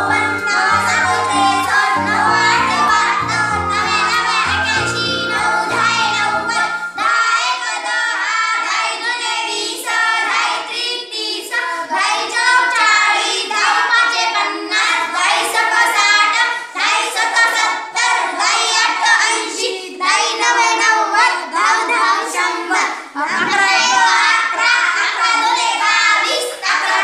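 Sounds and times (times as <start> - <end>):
background music: 0.0 - 7.8
children chanting in unison: 5.6 - 27.0.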